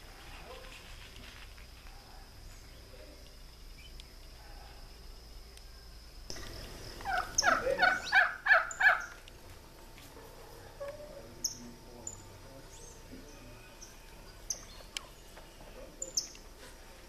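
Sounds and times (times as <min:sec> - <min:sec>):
bird calling: 0:05.6 - 0:09.4, 0:10.1 - 0:17.0.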